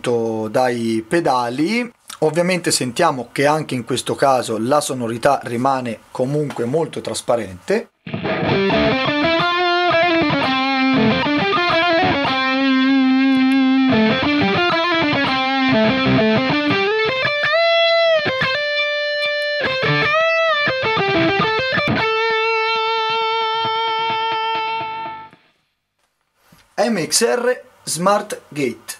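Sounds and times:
distorted electric guitar riff: 8.0s - 25.5s.

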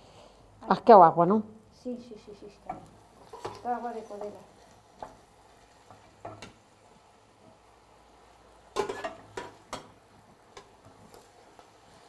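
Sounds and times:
utensils knocking on a saucepan: 5.9s - 6.6s, 8.8s - 10.0s.

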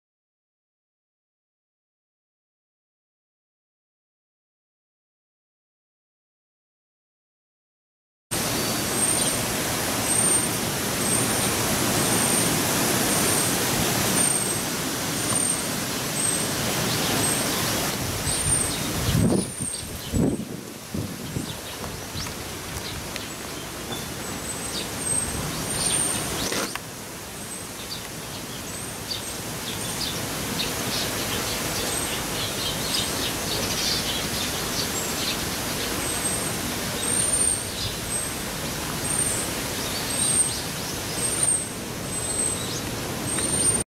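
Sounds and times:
small birds chirping: 8.4s - 20.4s, 21.1s - 43.8s
steady background hiss: 8.4s - 43.8s.

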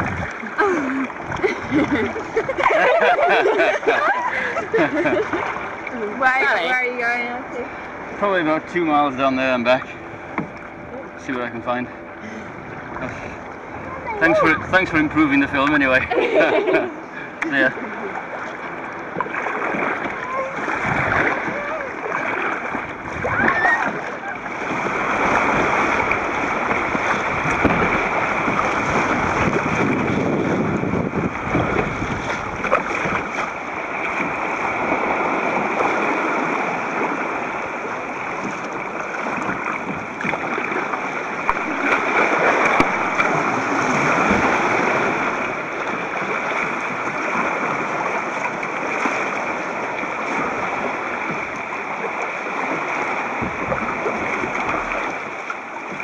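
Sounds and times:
sea water sloshing and splashing: 0.0s - 56.0s
waves washing over rocks: 17.5s - 56.0s.

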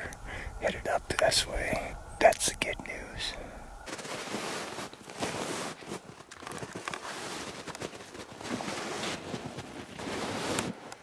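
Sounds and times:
footsteps in snow: 3.8s - 10.9s
clothing rustling: 3.9s - 11.0s.

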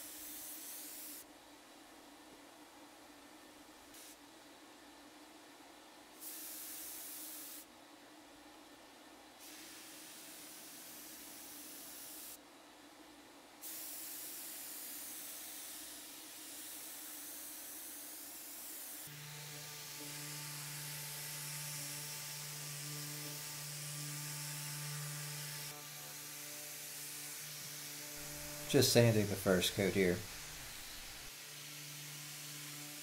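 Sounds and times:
paint spray gun hissing: 0.0s - 1.2s, 6.2s - 7.6s, 9.4s - 12.4s, 13.6s - 20.4s, 25.3s - 31.4s.

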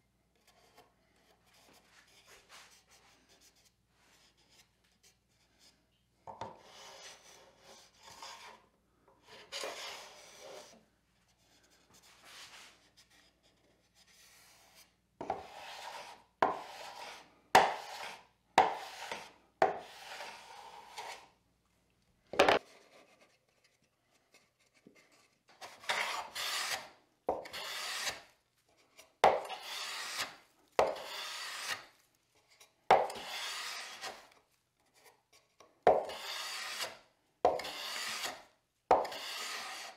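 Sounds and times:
hand plane rasping on wood: 15.3s - 21.2s, 25.7s - 28.2s, 29.3s - 31.9s, 33.0s - 34.2s, 35.9s - 39.9s.

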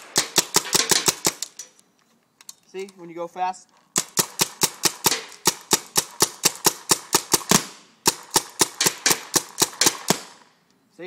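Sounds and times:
paintball gun popping: 3.9s - 10.4s.

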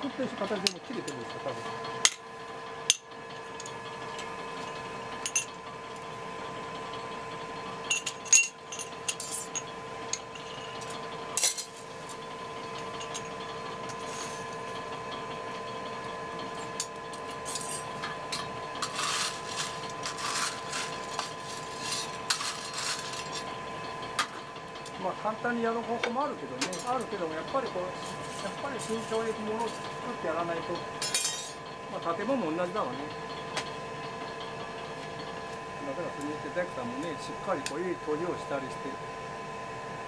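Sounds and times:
steady hum: 0.0s - 40.0s
coal being raked: 18.7s - 23.5s, 28.0s - 30.0s.

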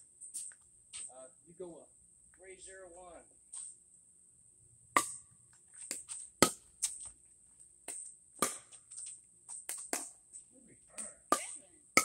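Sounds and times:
paddle hitting pickleball: 5.0s - 5.2s, 5.9s - 6.6s, 7.8s - 8.8s, 9.7s - 10.2s.

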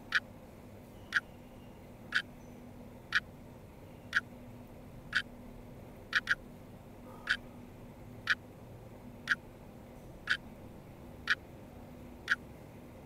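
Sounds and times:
faint steady hum: 0.0s - 13.0s
sharp clock-like ticks: 6.1s - 6.4s.

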